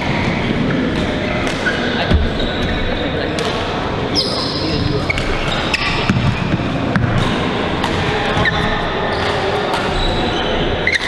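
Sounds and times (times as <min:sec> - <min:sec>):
echoing hall din: 0:00.0 - 0:11.0
racket hitting shuttlecock: 0:00.8 - 0:01.9, 0:05.1 - 0:10.0
shoe squeaks on court floor: 0:04.2 - 0:06.6, 0:08.3 - 0:11.0.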